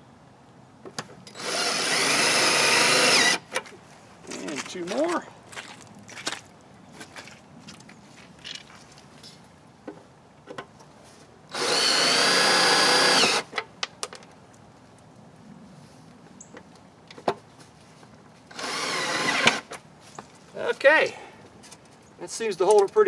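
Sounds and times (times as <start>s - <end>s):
cordless drill whine: 1.3s - 3.4s, 11.5s - 13.5s, 18.5s - 19.6s
handling clicks and knocks: 13.5s - 14.6s, 22.6s - 23.0s.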